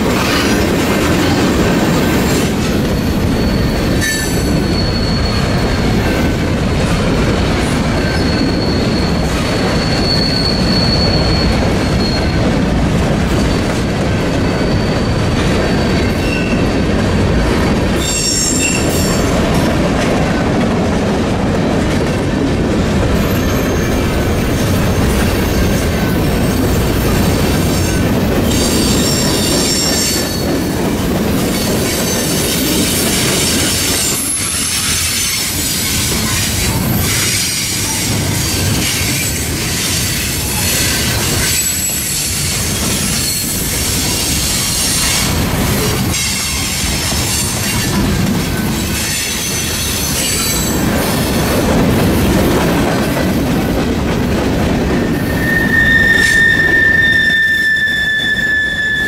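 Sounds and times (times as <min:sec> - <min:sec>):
train wheels rumbling on rail: 0:00.0 - 0:59.0
high-pitched wheel squeal: 0:02.9 - 0:06.3, 0:08.0 - 0:12.4, 0:14.4 - 0:16.6, 0:55.2 - 0:59.0.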